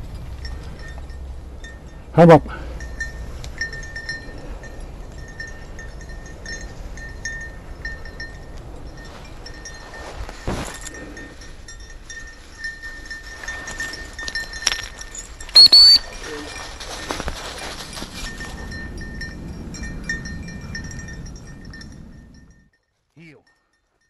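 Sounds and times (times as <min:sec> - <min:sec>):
dog's bell tinkling: 0:00.0 - 0:24.0
footsteps crunching in dry grass: 0:08.9 - 0:11.0, 0:16.0 - 0:18.6
shrill rising tone: 0:15.6 - 0:16.1.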